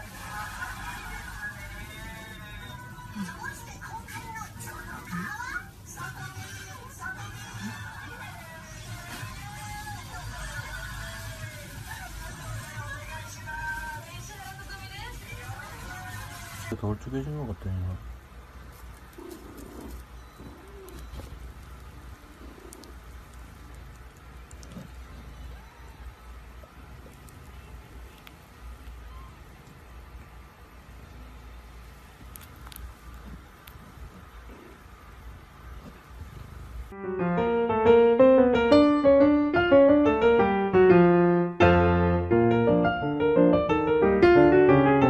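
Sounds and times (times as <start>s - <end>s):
kitten snoring softly: 19.1s - 21.4s, 22.0s - 23.6s, 33.2s - 35.0s
faint low noise: 25.4s - 45.0s
fast piano music: 36.9s - 45.0s.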